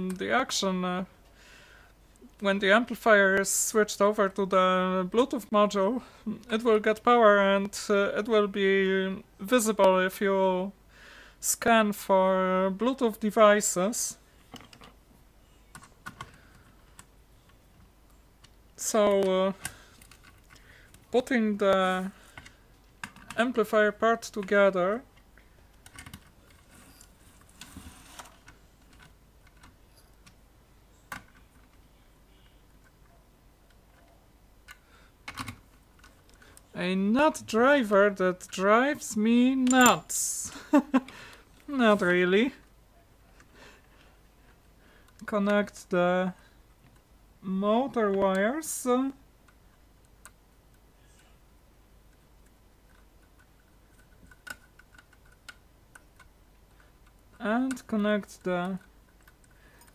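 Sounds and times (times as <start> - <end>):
small metal parts clicking: 52.9 - 57.9.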